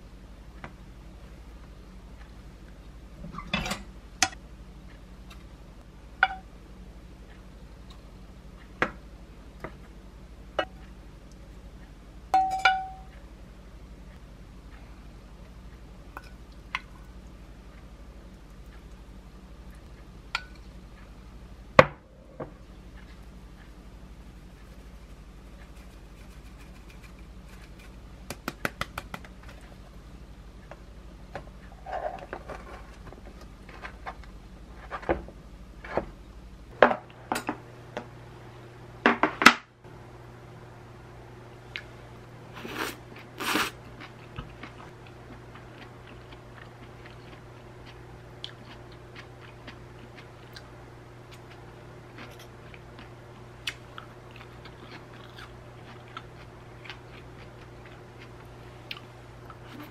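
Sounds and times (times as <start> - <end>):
spice shaker rattling: 25.6 - 29.2
person chewing: 42.6 - 59.9.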